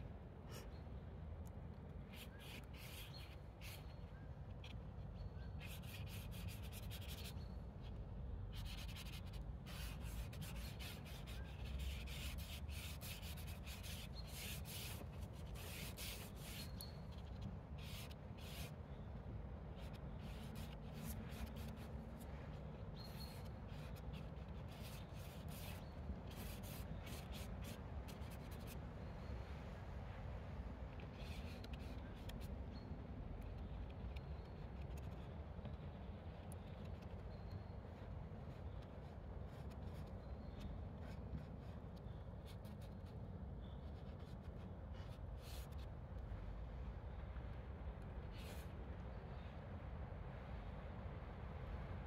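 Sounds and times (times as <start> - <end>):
paintbrush scratching on paper: 5.6 - 7.3, 8.6 - 18.7, 19.8 - 22.0, 23.0 - 28.8, 38.6 - 40.2.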